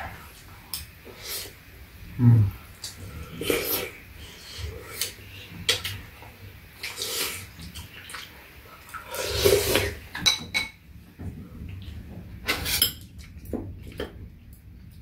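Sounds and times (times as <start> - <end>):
slurping soup: 8.9 - 10.0.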